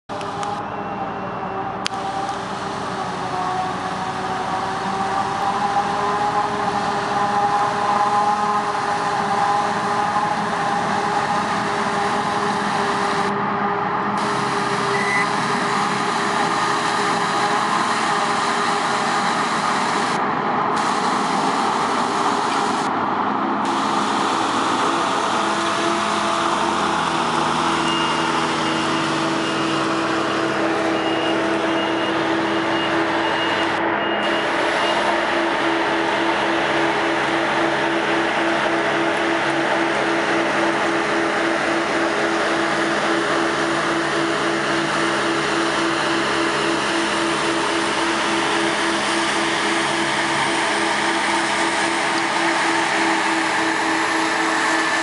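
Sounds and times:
harvester machine drone: 0.1 - 55.0
faint repeating high beep: 14.9 - 15.3.

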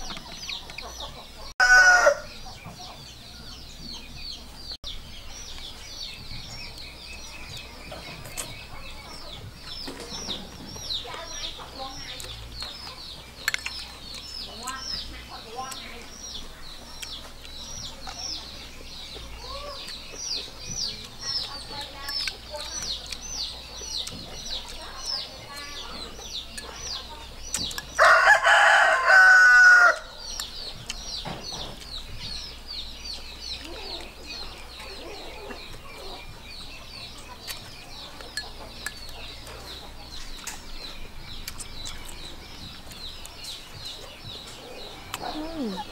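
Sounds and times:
rooster crowing: 1.6 - 2.3, 28.0 - 30.1.

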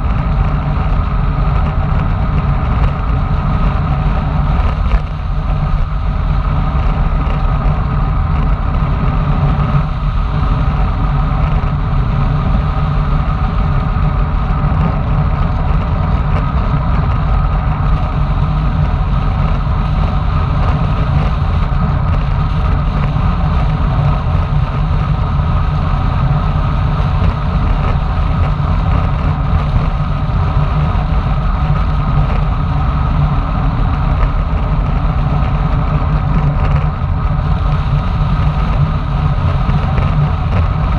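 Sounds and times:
tyre noise on asphalt: 0.0 - 40.9
wind buffeting microphone: 0.0 - 40.9.

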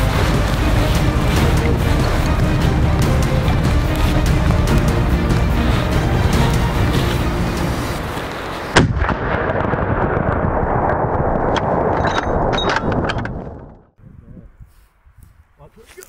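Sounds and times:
background music: 0.0 - 8.7
loud rifle shot: 8.7 - 10.9.

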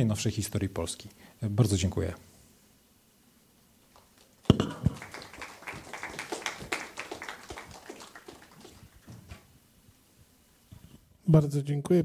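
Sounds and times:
audience applauding: 4.0 - 9.3
sharp knocks: 4.5 - 5.0.

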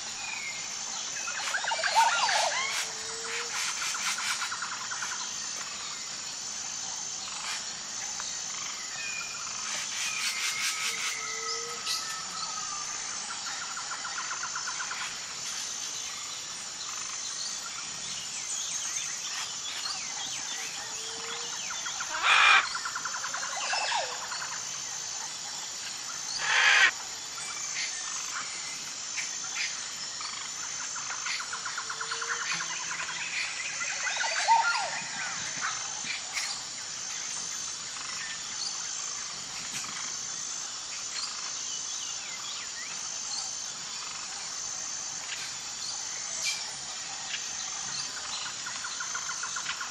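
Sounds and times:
pulsing high insect chirp: 0.0 - 49.9
birds chirping and calling: 1.2 - 5.1, 21.1 - 24.1, 26.4 - 26.9.

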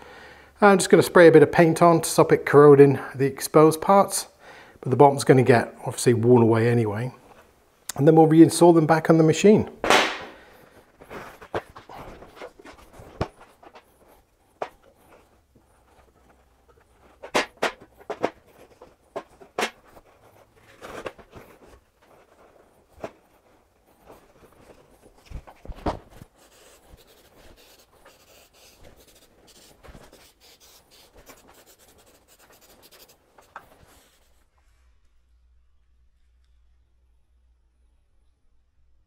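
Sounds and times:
paper towels rustling: 10.5 - 34.5.

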